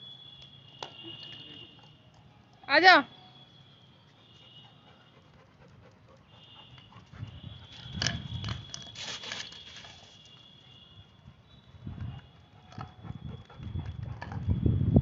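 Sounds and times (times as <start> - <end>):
dog panting: 4.6 - 7.3, 12.5 - 14.4.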